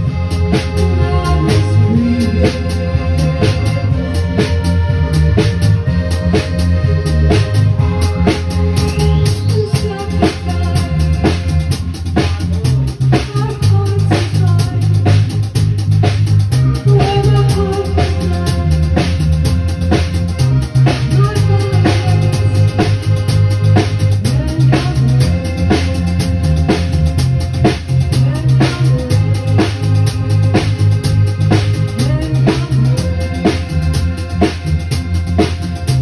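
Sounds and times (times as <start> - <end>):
synthesizer lines: 0.0 - 13.2
drums with steady beat: 0.0 - 36.0
electric bass guitar: 0.0 - 36.0.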